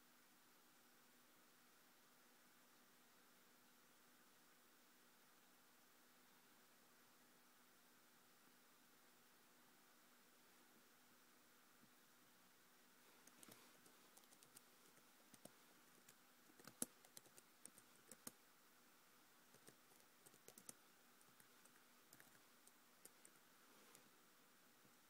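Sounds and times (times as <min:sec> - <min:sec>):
laptop keys typing: 0:13.2 - 0:18.4, 0:19.5 - 0:24.0.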